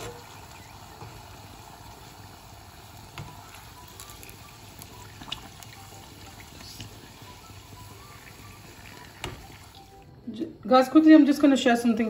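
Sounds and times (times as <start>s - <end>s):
oil sizzling: 0.0s - 10.0s
oil ticks and pops: 3.0s - 7.0s, 8.2s - 9.8s.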